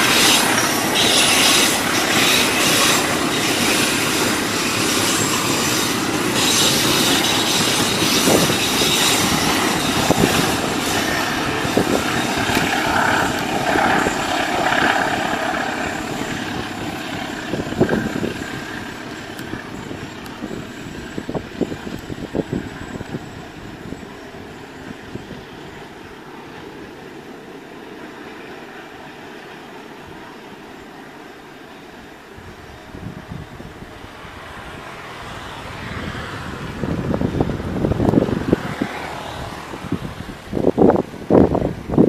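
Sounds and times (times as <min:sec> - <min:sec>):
freight train rolling on rails: 0:00.0 - 0:42.0.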